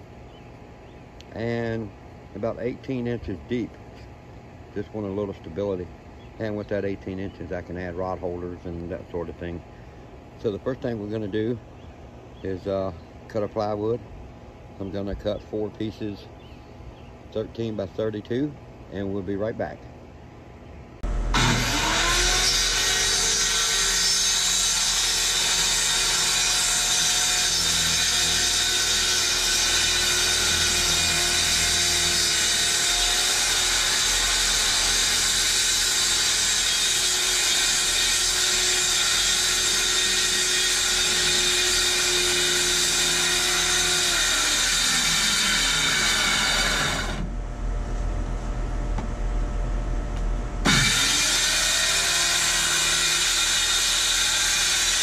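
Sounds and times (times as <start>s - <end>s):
circular saw cutting plywood: 21.3s - 47.3s, 50.6s - 55.0s.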